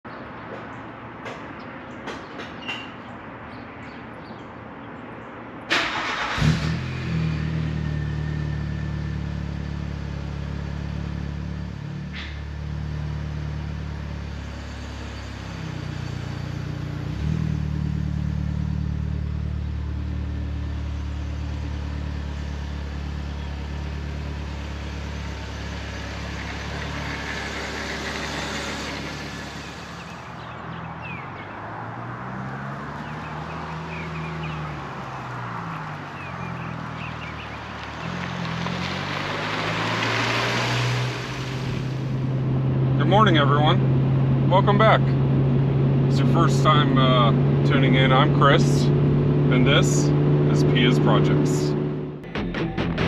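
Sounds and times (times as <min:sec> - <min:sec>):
car engine cranking: 0:05.7 - 0:07.6
car engine idling: 0:18.4 - 0:31.2.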